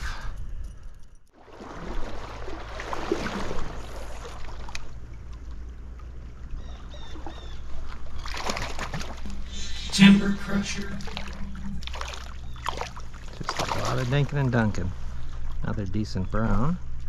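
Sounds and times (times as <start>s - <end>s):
stream flowing: 7.8s - 15.7s.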